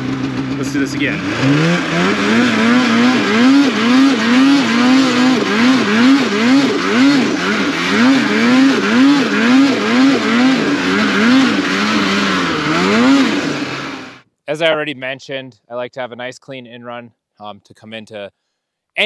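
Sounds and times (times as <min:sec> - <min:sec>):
snowmobile engine revving: 0:00.0 - 0:14.9.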